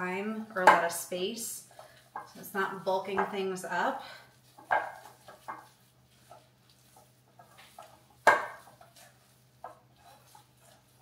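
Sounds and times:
metal spoon stirring in glass bowl: 4.4s - 11.0s.

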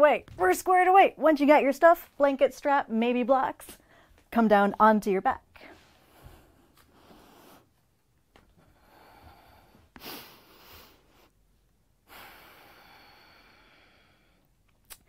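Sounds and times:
woman breathing: 3.8s - 4.2s, 5.6s - 14.6s.

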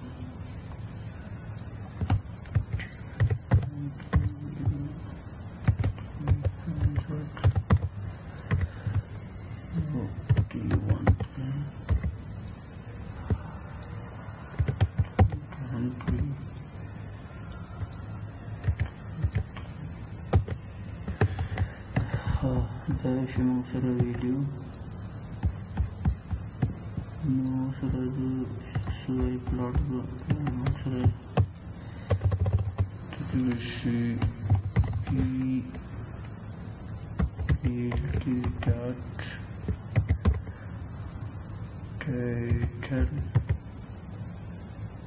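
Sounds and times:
typing on a computer keyboard: 2.0s - 4.8s, 5.6s - 9.0s, 10.3s - 12.2s, 14.6s - 16.2s, 18.6s - 19.7s, 20.3s - 22.3s, 28.7s - 33.6s, 34.2s - 35.3s, 37.2s - 38.7s, 39.6s - 40.5s, 42.4s - 43.6s.

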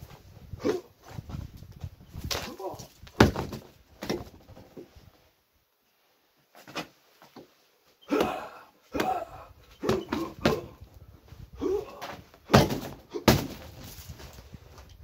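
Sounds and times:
punches thudding on punching bag: 3.2s - 3.6s, 8.1s - 10.7s, 12.5s - 13.7s.

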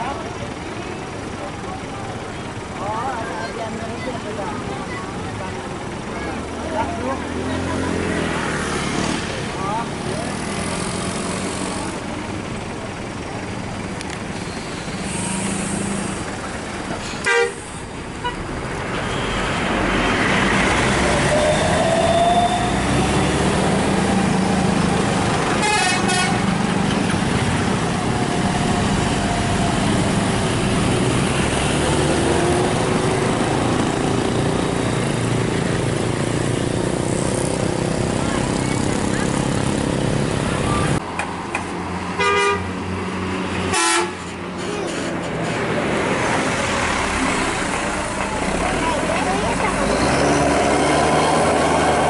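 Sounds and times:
bus engine passing: 0.0s - 52.0s
loud horn blast: 17.2s - 18.4s, 25.6s - 26.5s, 42.2s - 42.7s, 43.7s - 44.3s.

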